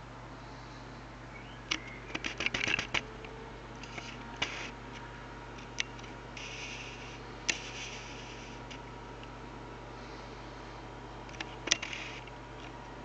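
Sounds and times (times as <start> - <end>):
steady low hum: 0.0 - 13.0
small mechanical clicks: 1.7 - 3.1, 3.8 - 5.0, 11.3 - 12.8
light rubbing: 6.4 - 8.8.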